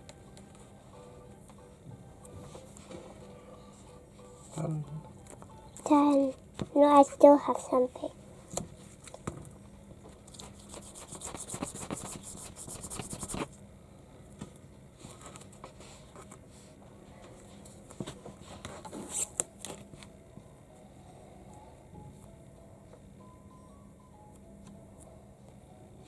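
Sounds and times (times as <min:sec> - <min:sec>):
fingers rubbing modelling clay: 0:10.3 - 0:13.5.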